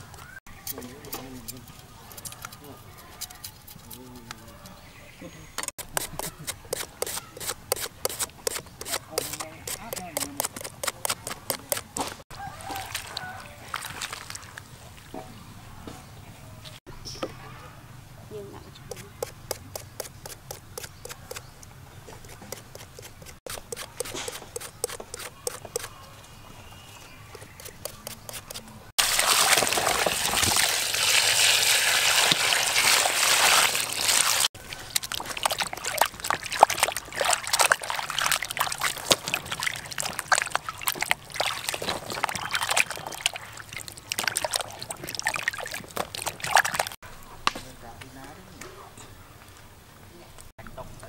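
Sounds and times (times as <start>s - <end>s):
hands sloshing vegetables in water: 12.1s - 14.6s, 29.0s - 47.0s
water pouring into a basin: 29.0s - 47.0s.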